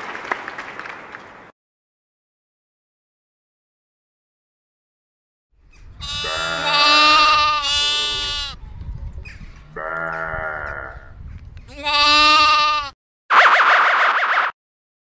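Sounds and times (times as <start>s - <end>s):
sheep bleating: 6.0s - 8.6s, 9.8s - 11.1s, 11.7s - 13.0s.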